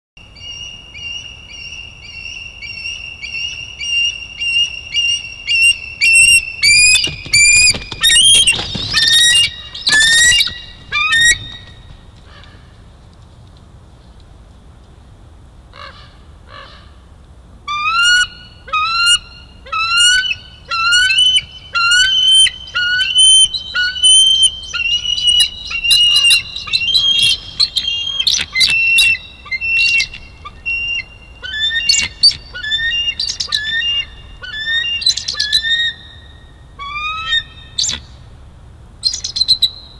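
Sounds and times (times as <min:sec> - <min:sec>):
eagle chittering calls: 0:00.4 - 0:11.8, 0:17.7 - 0:38.2
rushing wing noise: 0:06.1 - 0:12.7.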